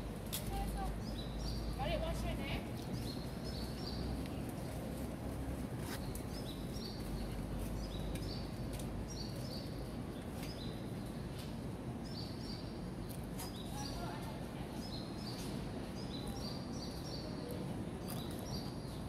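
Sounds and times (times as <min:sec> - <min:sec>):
outdoor background hum: 0:00.0 - 0:19.0.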